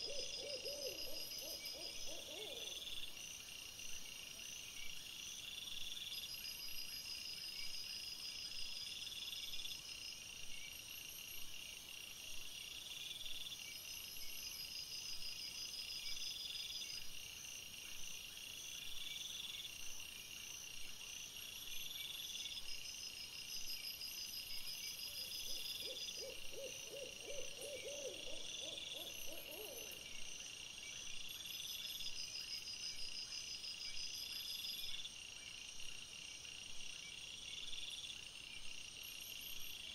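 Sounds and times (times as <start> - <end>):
faint high pulsing calls: 0.0 - 2.8, 25.2 - 30.2.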